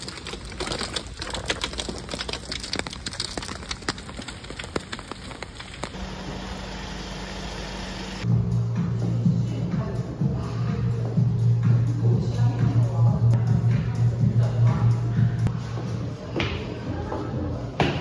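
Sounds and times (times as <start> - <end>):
rain pattering on umbrella: 0.0 - 6.0
music: 8.2 - 18.0.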